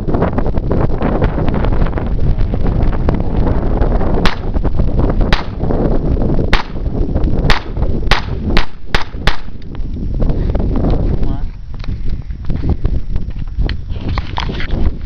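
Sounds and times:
pistol shots: 0:04.2 - 0:04.5, 0:05.3 - 0:05.6, 0:06.5 - 0:06.8, 0:07.5 - 0:09.6.

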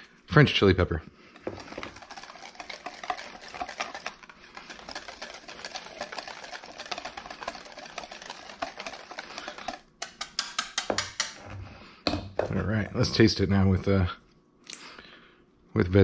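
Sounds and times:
whisk clicking in metal bowl: 0:01.4 - 0:11.4.

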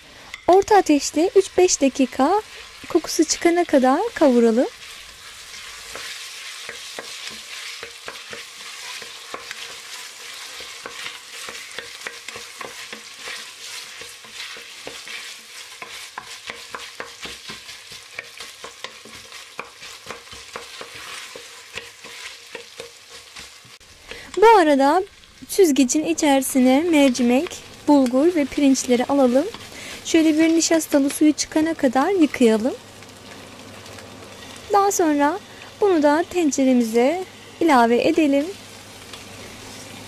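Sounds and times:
vegetables sizzling in oil: 0:00.0 - 0:40.0
wooden spoon scraping pot: 0:26.9 - 0:31.2.

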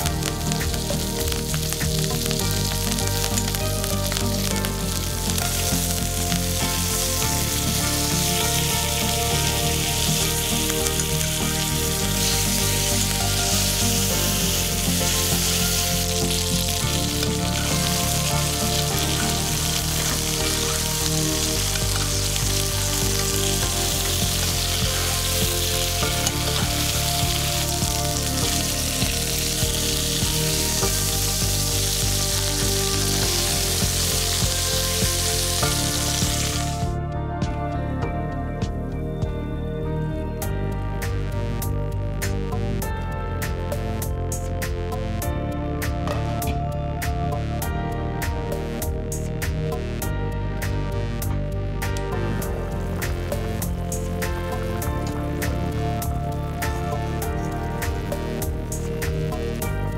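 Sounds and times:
chicken sizzling in frying pan: 0:00.0 - 0:37.0
soft background music: 0:00.0 - 0:59.9.

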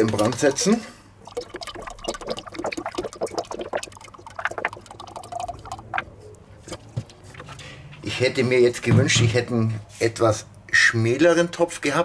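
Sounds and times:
oil glugging into a metal pot: 0:00.0 - 0:06.2.

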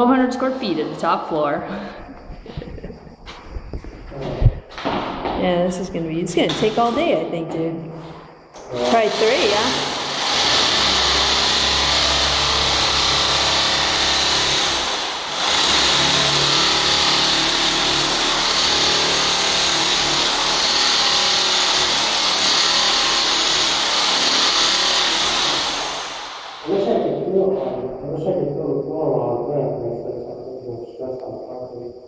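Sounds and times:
hammer drill chipping glue: 0:08.8 - 0:26.7.

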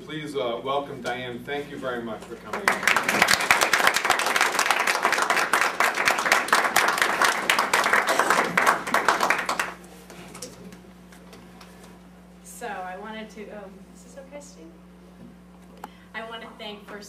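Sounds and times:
audience applauding: 0:02.5 - 0:09.8.

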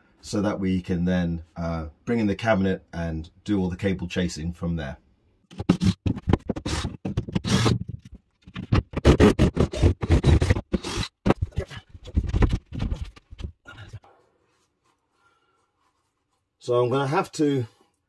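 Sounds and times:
scraping and knocking on wooden floor: 0:05.5 - 0:11.5.

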